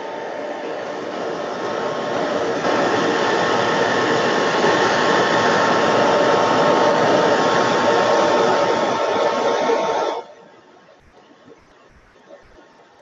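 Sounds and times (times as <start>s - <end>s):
hair dryer running: 0.0s - 9.7s.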